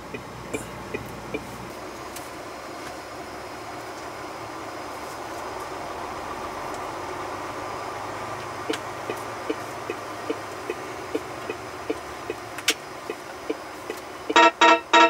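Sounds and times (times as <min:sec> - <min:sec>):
turn signal ticking: 0:00.0 - 0:01.7, 0:08.2 - 0:15.0
truck engine and road noise: 0:00.0 - 0:15.0.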